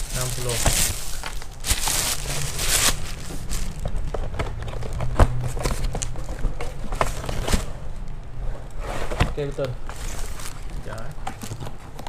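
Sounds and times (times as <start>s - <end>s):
plastic bag rustling: 0.0s - 6.4s, 9.4s - 11.8s
cardboard box clicks and knocks: 3.8s - 7.7s.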